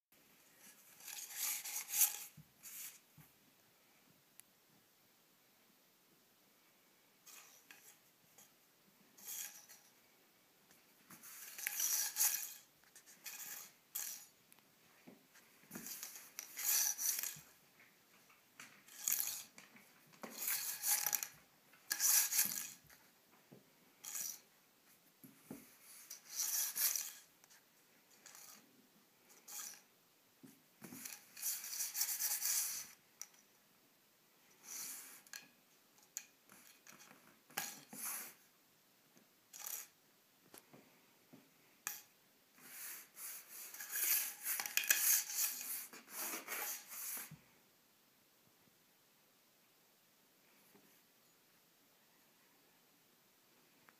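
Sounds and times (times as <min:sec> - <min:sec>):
plastic straw scraping on wooden floor: 0:42.6 - 0:47.4.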